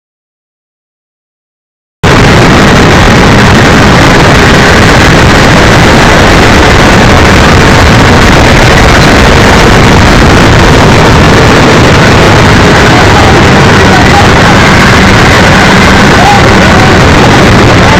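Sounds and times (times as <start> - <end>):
motorcycle engine and wind rush: 2.0 - 17.9.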